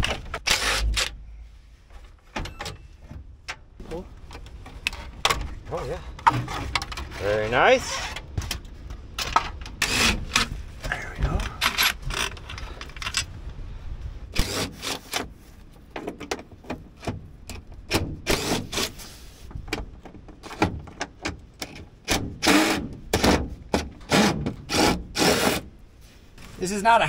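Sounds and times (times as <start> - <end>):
plastic scraping and clunking: 6.2 - 7.4
cordless drill: 24.1 - 25.6.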